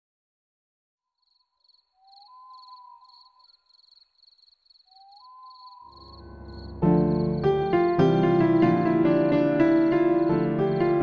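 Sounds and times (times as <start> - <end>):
crickets chirping: 1.0 - 8.1, 9.7 - 11.0.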